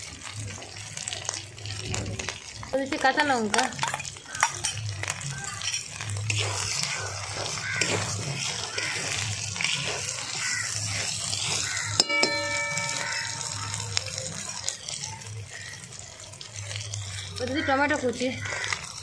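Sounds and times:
food sizzling in oil: 0.0 - 19.0
sharp ringing clink: 12.0 - 13.8.

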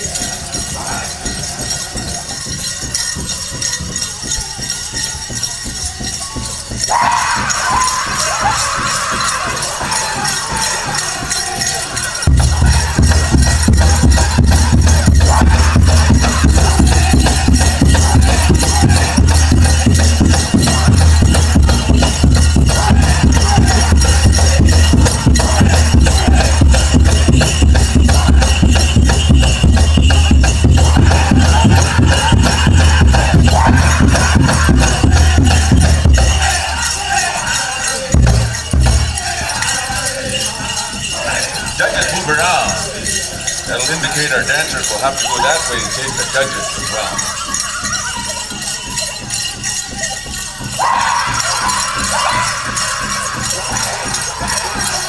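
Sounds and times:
bells jingling: 0.0 - 55.0
big drum pounding fast beat: 0.0 - 55.0
people singing: 0.0 - 55.0.

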